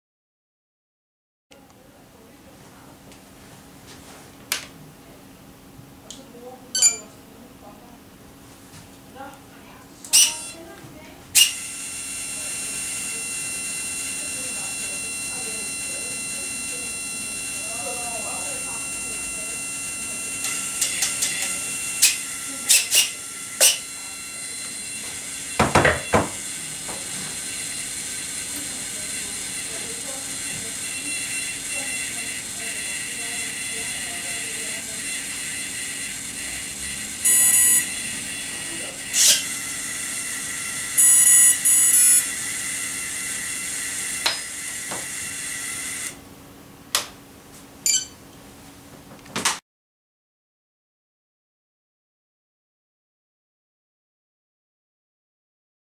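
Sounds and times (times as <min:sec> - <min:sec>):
steady background hum: 0:01.6 - 0:49.4
high electronic beeps: 0:06.8 - 0:07.1, 0:37.2 - 0:38.1, 0:41.0 - 0:42.3, 0:47.8 - 0:48.2.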